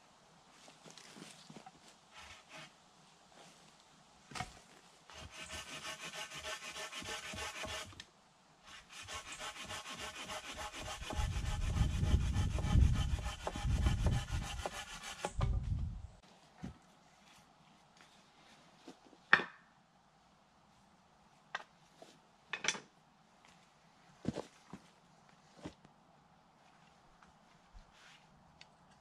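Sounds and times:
hand tool rasping on wood: 0:05.1 - 0:08.0, 0:08.7 - 0:15.4.

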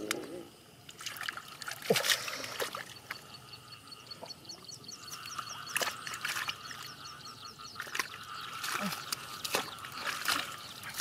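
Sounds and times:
small splashes and clicks: 0:00.9 - 0:03.2, 0:05.2 - 0:06.9, 0:07.8 - 0:11.0
hands sloshing in muddy water: 0:05.6 - 0:06.9, 0:07.8 - 0:11.0.

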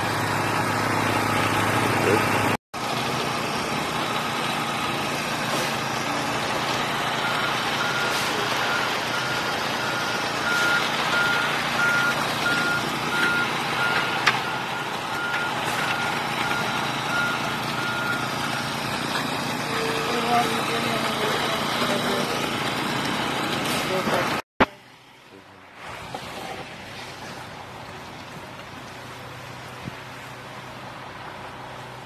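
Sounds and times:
small gas engine running: 0:00.0 - 0:09.1, 0:16.2 - 0:24.4
truck engine running: 0:00.0 - 0:32.0
reversing alarm beeping: 0:07.2 - 0:18.8.

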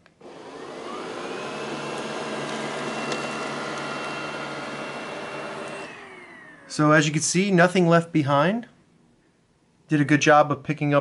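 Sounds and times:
robot vacuum motor whine: 0:00.2 - 0:06.9.

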